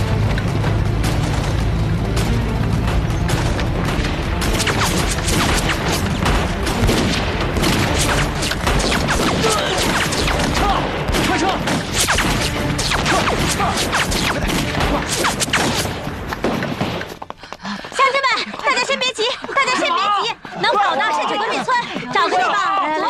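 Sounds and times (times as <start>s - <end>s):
booming blasts: 1.0s - 17.0s
rifle shots: 4.4s - 17.1s.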